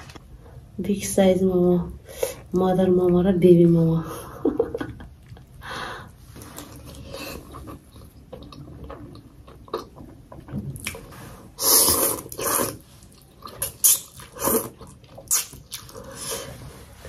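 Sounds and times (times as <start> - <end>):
person chewing: 6.4 - 16.5
person slurping noodles: 11.5 - 12.9, 13.6 - 16.6.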